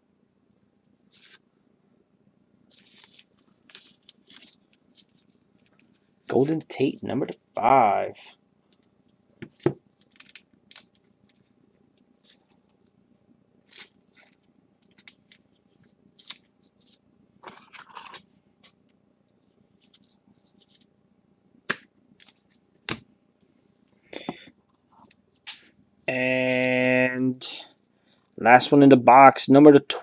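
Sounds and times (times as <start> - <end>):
trading cards being handled: 1.1 - 1.4, 2.7 - 6.9, 9.4 - 11.6, 13.6 - 18.8, 19.4 - 20.9, 21.7 - 23.0.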